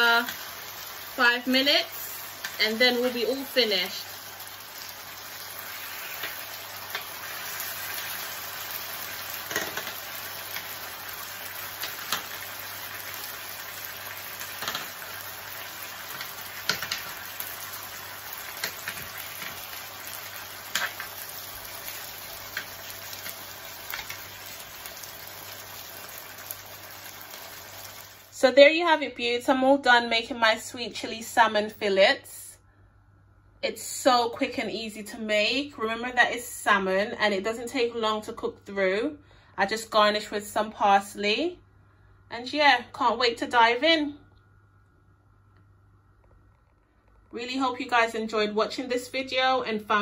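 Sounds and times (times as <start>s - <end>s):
salmon sizzling in a pan: 0.0s - 28.3s.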